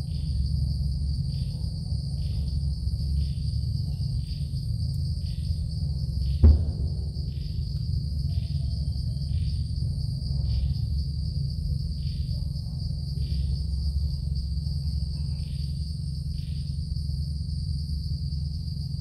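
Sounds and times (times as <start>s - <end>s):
insects droning high-pitched: 0.0s - 19.0s
short insect call: 0.0s - 19.0s
low rumble: 6.1s - 11.9s.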